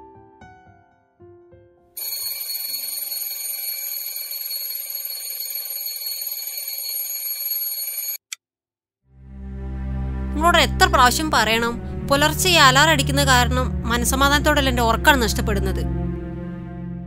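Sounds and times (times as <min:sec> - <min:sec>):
alarm ringing: 0:02.0 - 0:08.3.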